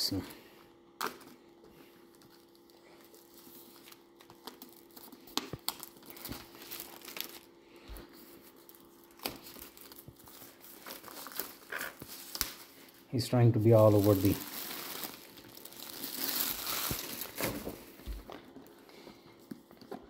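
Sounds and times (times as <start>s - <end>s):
plastic shrink-wrap tearing: 2.1s - 7.6s, 8.4s - 17.9s.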